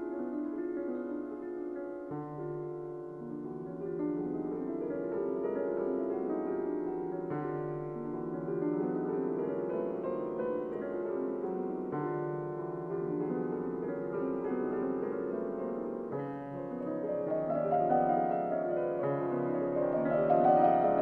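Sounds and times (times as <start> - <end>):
gentle piano music: 0.0 - 21.0.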